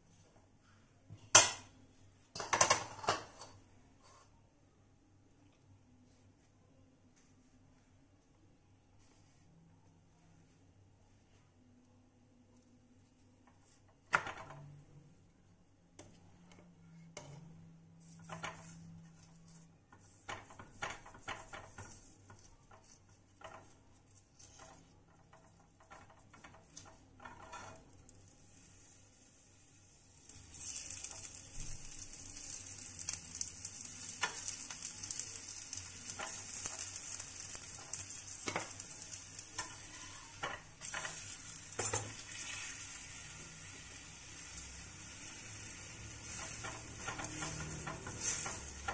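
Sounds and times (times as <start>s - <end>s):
ghee sizzling with crackles: 15.9s - 48.9s
spoon scraping pan: 16.9s - 28.1s, 34.0s - 42.8s, 44.5s - 48.9s.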